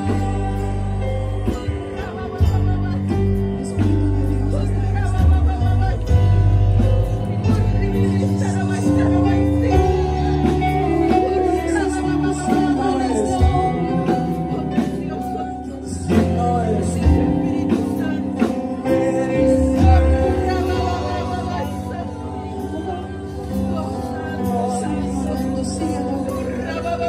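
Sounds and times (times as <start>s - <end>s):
drums: 0.0s - 27.0s
electric bass guitar: 0.0s - 27.0s
voices singing through microphones: 0.0s - 27.0s.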